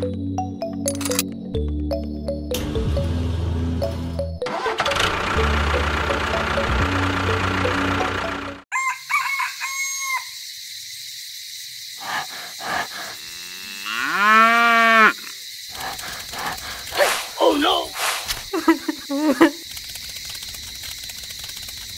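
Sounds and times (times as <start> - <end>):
music: 0.0 - 8.7
steady motor sound: 5.0 - 8.6, 15.7 - 17.4.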